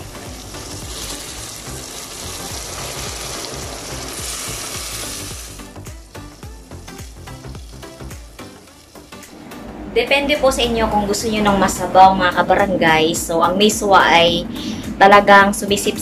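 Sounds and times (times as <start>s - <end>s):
water sizzling in hot oil: 0.0s - 9.3s.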